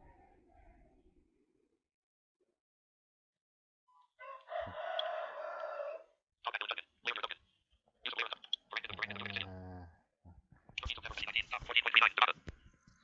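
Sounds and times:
animal calling: 8.0 - 9.9.

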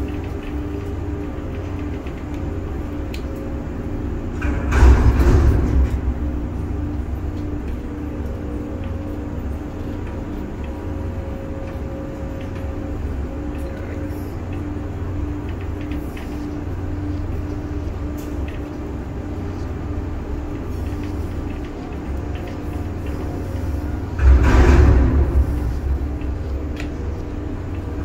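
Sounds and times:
crane machinery rumbling: 0.0 - 28.0
machinery rushing surge: 24.0 - 27.6.

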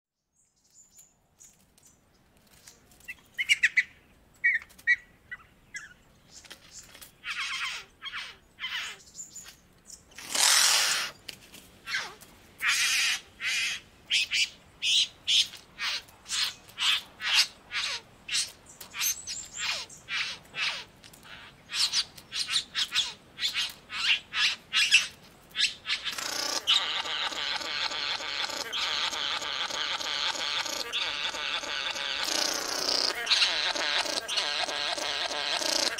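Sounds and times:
birds giving harsh grating calls: 7.2 - 9.0, 10.1 - 11.2, 11.8 - 35.9
buzzing churring bird song: 16.3 - 35.9.

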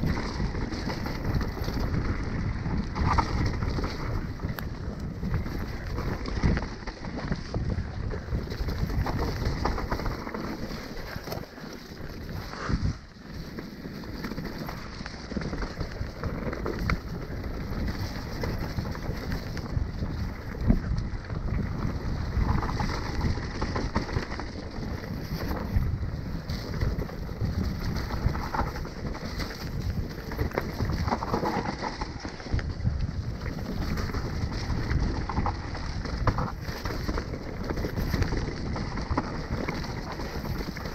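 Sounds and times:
wind buffeting microphone: 0.0 - 13.4, 14.2 - 40.9
bike rattling and knocking: 0.0 - 40.9
bike tyre noise: 0.0 - 40.9.

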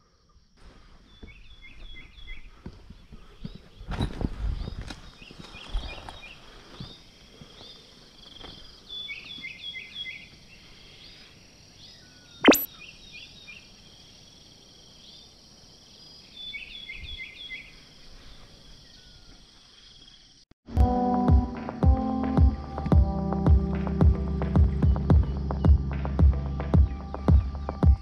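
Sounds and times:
birds chirping: 11.9 - 13.4
sharp click: 12.4 - 12.7.

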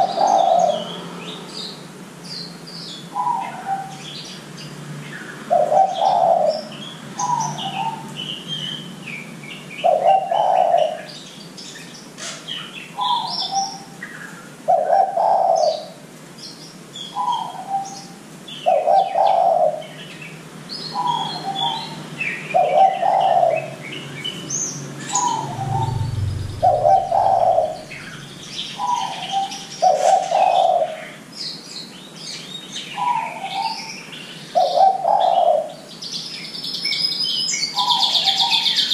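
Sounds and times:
dove cooing: 5.5 - 6.6, 9.8 - 11.1, 14.7 - 16.0, 18.7 - 19.8, 22.6 - 23.7, 25.1 - 31.0, 34.6 - 35.8
short low rumble: 25.0 - 29.0.

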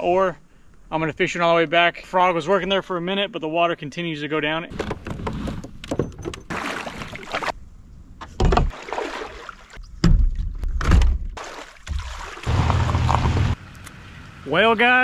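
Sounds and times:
water splashing around kayak: 5.2 - 7.6, 8.6 - 10.5, 11.4 - 13.6.

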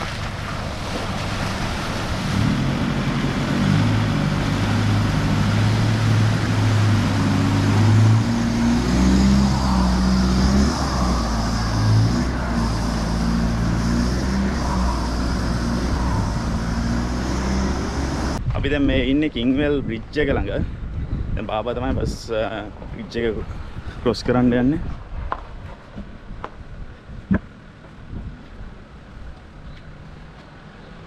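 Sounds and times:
diesel engine running: 0.0 - 18.4.

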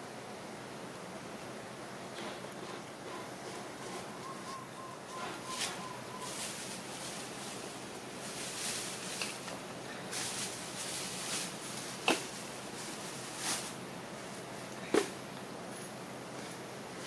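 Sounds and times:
steady hiss: 0.0 - 17.0
soft rustling: 5.5 - 14.7.

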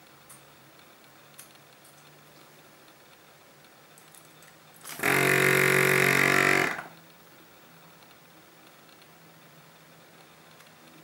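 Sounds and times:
vacuum compressor humming: 4.8 - 7.0.

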